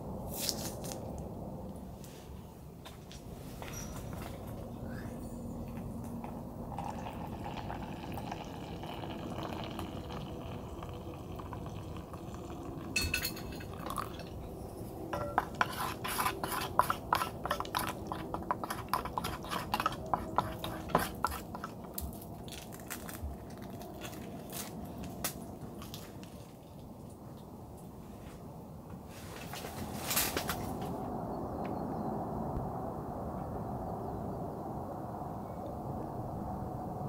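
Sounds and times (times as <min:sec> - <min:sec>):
water pouring into steel cup: 0:06.7 - 0:14.4, 0:15.2 - 0:21.8
stirrer clicking against steel cup: 0:16.5 - 0:21.8.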